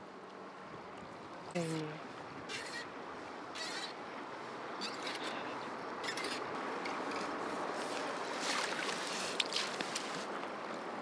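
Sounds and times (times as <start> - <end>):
water splashing: 8.0 - 10.3.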